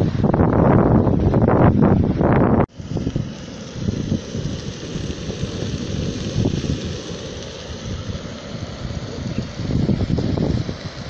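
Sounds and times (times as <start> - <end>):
wind buffeting microphone: 0.0 - 11.0
faint hiss: 2.7 - 11.0.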